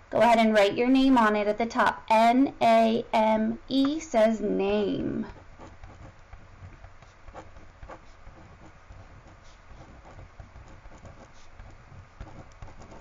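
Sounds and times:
pen scratching on paper: 5.3 - 13.0.

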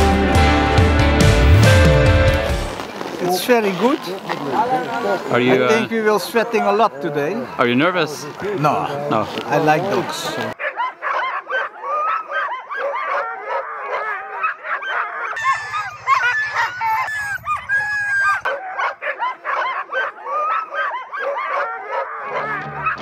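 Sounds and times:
music: 0.0 - 2.8, 22.4 - 23.0
dogs barking: 10.5 - 23.0.

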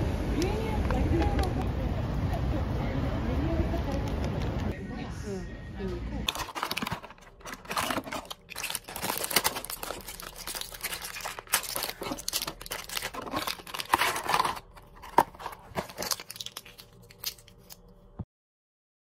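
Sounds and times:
foil pouch crackling: 6.3 - 17.9
packaging rustling and clicking: 6.3 - 17.9.

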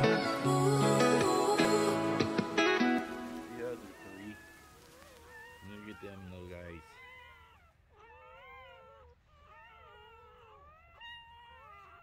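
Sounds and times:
puppies crying: 2.8 - 12.0.

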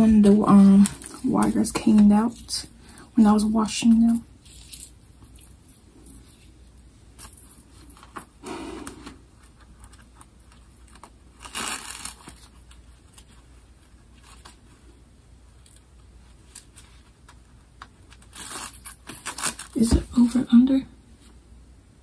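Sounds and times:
metal wire clicking and jingling: 2.2 - 8.3
fabric rustling: 4.0 - 9.1.

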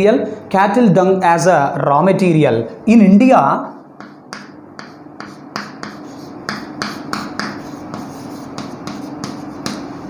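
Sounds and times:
chalk tapping and scraping on board: 4.0 - 10.0.

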